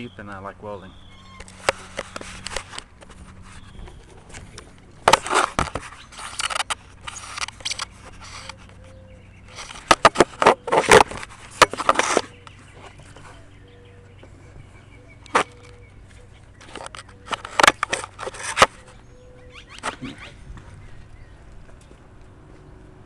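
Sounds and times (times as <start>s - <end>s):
camera handling scraping and rubbing: 1.4s - 13.5s, 15.3s - 20.4s.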